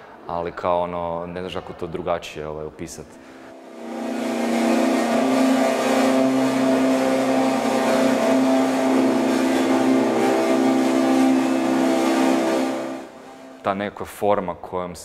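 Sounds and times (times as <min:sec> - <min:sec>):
distorted electric guitar drone: 0:03.1 - 0:13.7.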